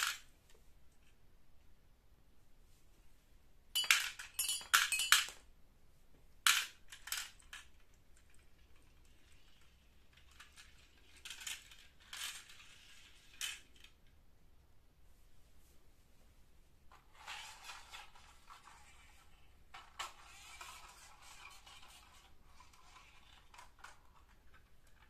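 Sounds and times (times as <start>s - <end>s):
glass marbles clinking: 3.8s - 5.4s
soft marble rattles: 3.8s - 5.5s, 6.5s - 14.2s, 16.9s - 25.0s.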